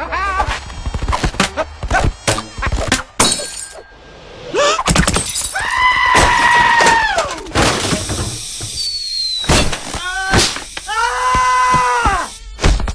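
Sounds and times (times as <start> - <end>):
crashes and things shattering: 4.9 - 8.5.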